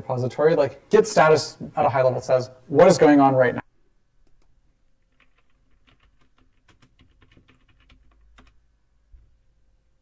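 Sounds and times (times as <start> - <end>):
keyboard typing: 4.2 - 8.6.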